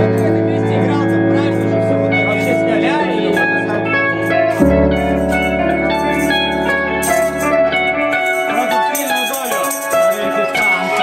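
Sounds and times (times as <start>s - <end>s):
keyboard chords: 0.0s - 11.0s
tambourine and shaker rattle: 4.2s - 7.6s, 8.2s - 11.0s.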